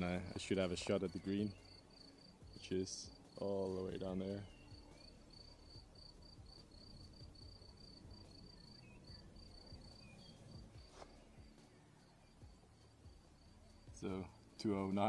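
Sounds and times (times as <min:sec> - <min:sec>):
cricket chirping: 0:01.2 - 0:02.4, 0:04.4 - 0:14.6.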